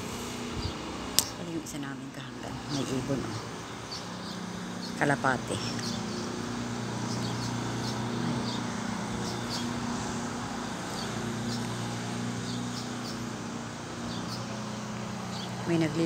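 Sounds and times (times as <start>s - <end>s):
motor humming: 0.0s - 16.0s
high bird chirps: 5.6s - 9.9s, 10.6s - 13.4s, 14.0s - 15.7s.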